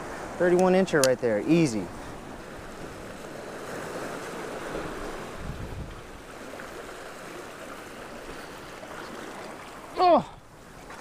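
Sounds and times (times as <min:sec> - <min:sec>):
wind buffeting microphone: 0:00.0 - 0:07.0
small waves washing against rocks: 0:00.0 - 0:11.0.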